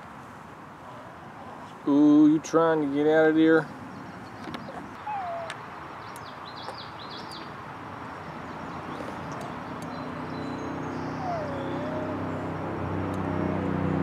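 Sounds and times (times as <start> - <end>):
outdoor background noise: 0.0 - 14.0
small bird chirping: 3.6 - 12.5.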